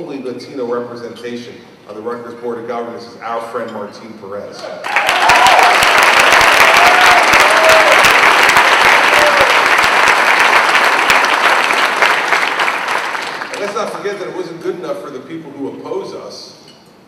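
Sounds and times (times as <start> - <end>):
audience applauding: 4.8 - 14.3.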